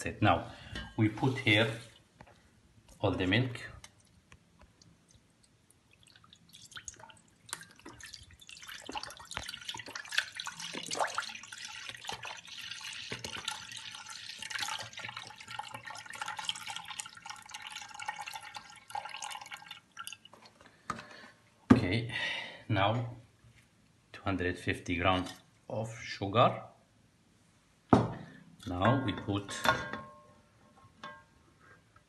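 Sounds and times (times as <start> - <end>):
milk pouring into a pot: 3.9 - 20.6.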